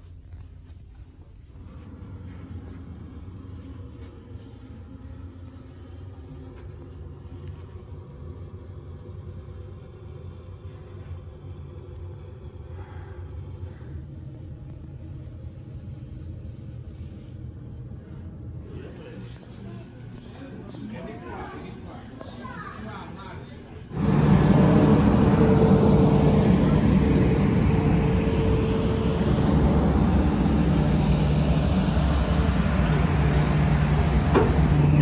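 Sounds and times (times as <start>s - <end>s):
ferry engines droning: 0.0s - 35.0s
onboard machinery hum: 23.9s - 35.0s.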